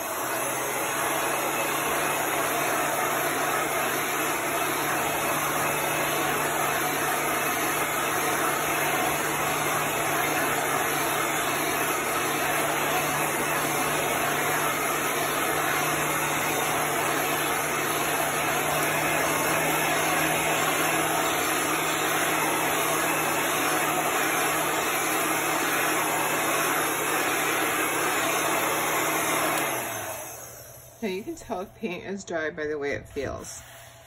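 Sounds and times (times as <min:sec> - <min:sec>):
heat gun blowing: 0:00.0 - 0:32.0, 0:33.1 - 0:34.0.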